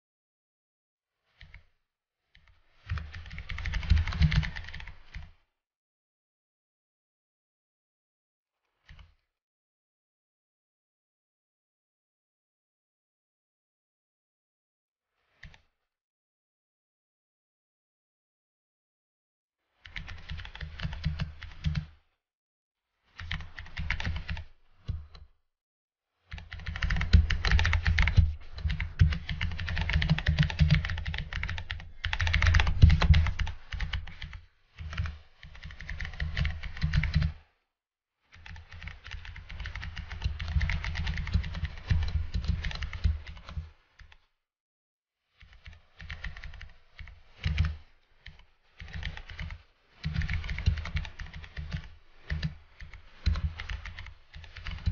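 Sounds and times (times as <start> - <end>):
typing on computer keyboard: 2.8 - 5.3, 19.8 - 22.0, 23.2 - 25.2, 26.3 - 37.4, 38.3 - 44.2, 45.4 - 54.9.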